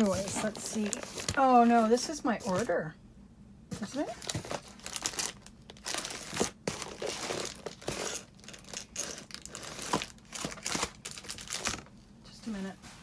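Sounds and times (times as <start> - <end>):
packing material rustling: 0.0 - 2.7, 3.8 - 11.9.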